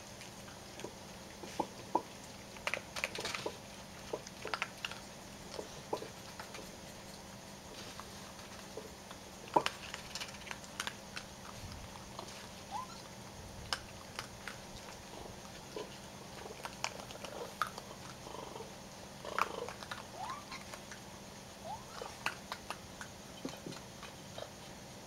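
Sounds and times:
raccoons scrambling: 0.0s - 24.8s
raccoon squeaky calls: 12.7s - 13.1s, 19.9s - 20.8s, 21.6s - 22.2s.

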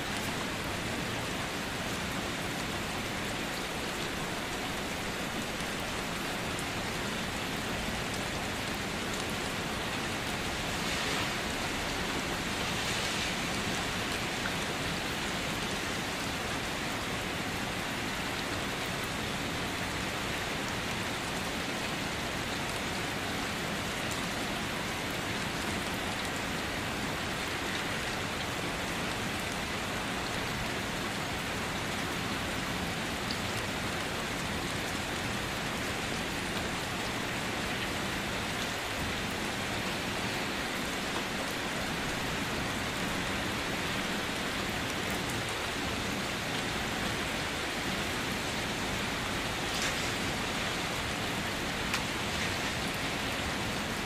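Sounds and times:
steady rain on hard surfaces: 0.0s - 54.0s.

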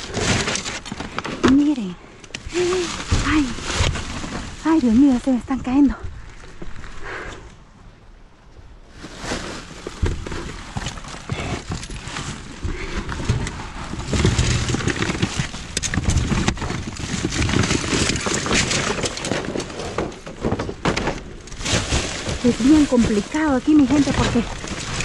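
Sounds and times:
things scraped in dumpster: 0.0s - 5.4s, 8.9s - 25.0s
broken glass crunching underfoot: 13.2s - 25.0s.

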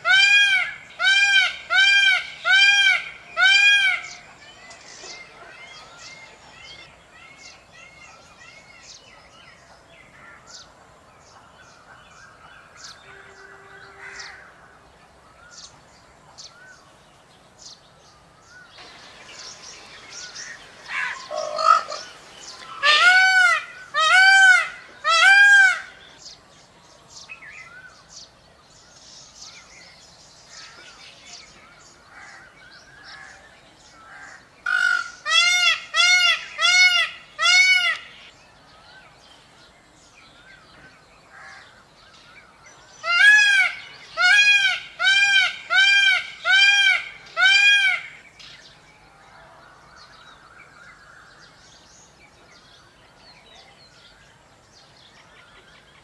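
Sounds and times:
peacock calling loudly: 0.0s - 4.3s, 12.7s - 14.9s, 18.8s - 26.1s, 34.0s - 38.4s, 43.0s - 48.4s
small birds chirping faintly: 0.0s - 56.0s.

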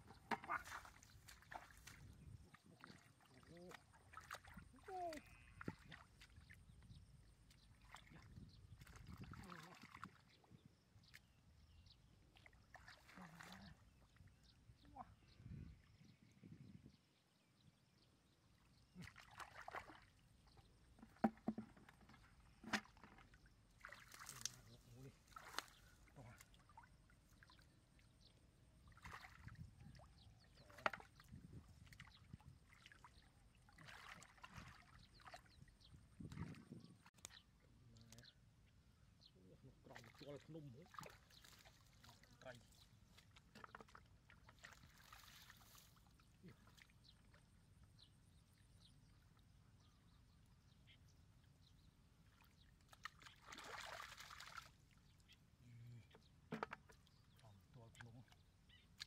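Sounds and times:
water sloshing and splashing: 0.0s - 14.2s, 18.8s - 37.5s, 39.8s - 47.6s, 52.1s - 55.4s, 56.0s - 59.0s.

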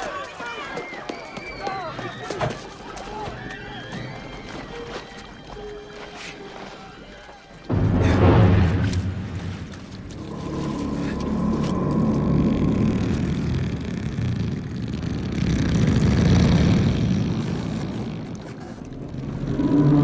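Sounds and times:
tar pit churning deep rumble: 7.6s - 20.0s.

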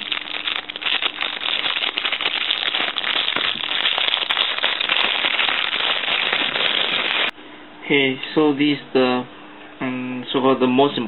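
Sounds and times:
plastic bag crinkling: 0.0s - 7.3s.

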